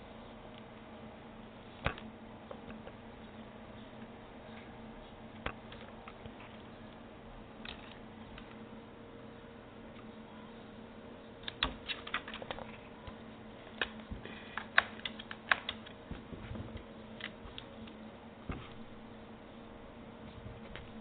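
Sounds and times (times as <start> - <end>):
keyboard keys clicking: 11.4 - 13.2, 13.8 - 16.2.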